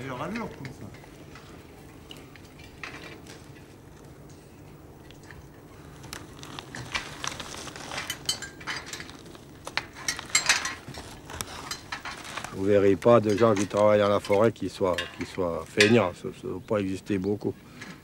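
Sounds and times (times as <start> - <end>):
footsteps through twigs: 5.8 - 13.2
metal ladder clinking and rattling: 6.7 - 16.1.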